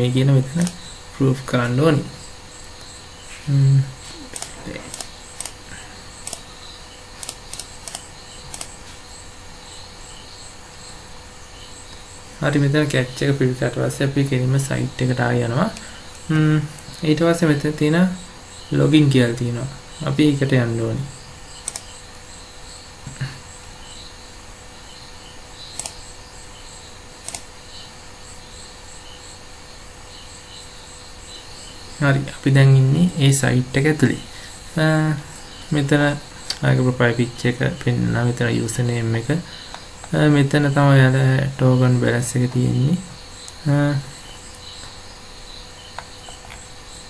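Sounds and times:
crickets chirping: 0.0 - 47.0
steady hiss: 0.0 - 47.0
computer mouse clicking: 4.3 - 5.6, 6.2 - 6.5, 7.2 - 8.8, 21.6 - 22.0, 25.7 - 26.1, 27.2 - 27.5, 39.6 - 40.2, 45.9 - 46.7.

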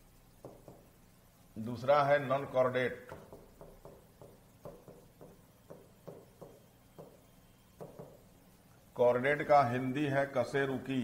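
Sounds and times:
chalk tapping on blackboard: 0.4 - 1.0, 3.1 - 8.3.

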